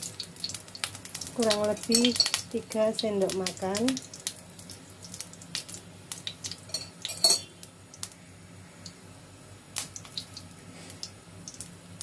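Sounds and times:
kitchen utensils clinking: 0:01.8 - 0:02.4, 0:06.7 - 0:07.5
ringing metallic clink: 0:06.7 - 0:07.5.

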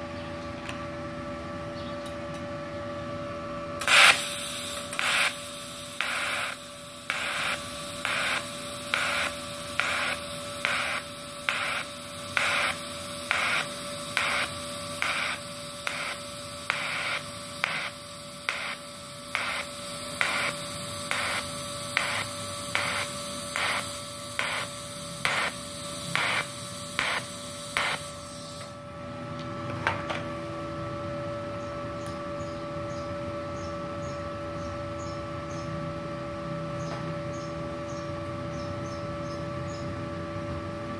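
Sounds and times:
welding arc hissing: 0:03.8 - 0:28.8
welder faint hum: 0:03.8 - 0:29.2.

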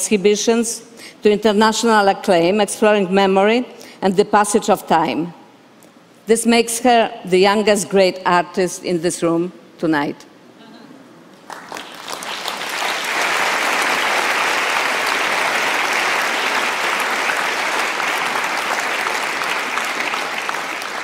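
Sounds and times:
audience applauding: 0:11.4 - 0:21.0.

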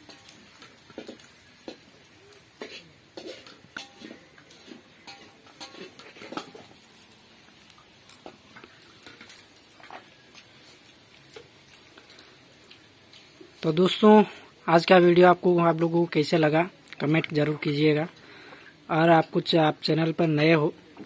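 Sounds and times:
fingers mixing food on steel plate: 0:00.0 - 0:13.3.

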